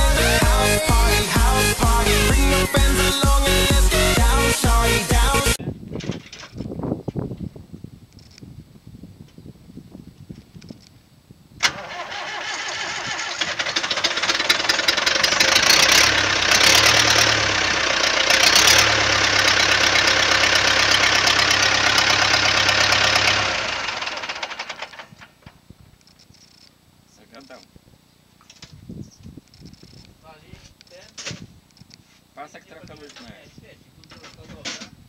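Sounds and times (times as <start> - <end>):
diesel engine cranking and running: 0.0 - 5.6, 11.6 - 25.4.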